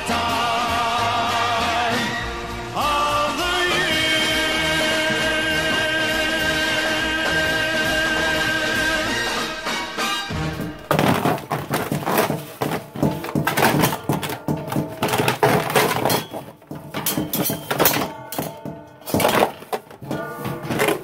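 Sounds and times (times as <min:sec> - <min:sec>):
foil pan crinkling: 0:10.4 - 0:21.0
food scraped into bin: 0:10.4 - 0:21.0
pan knocking against metal bin: 0:10.4 - 0:21.0.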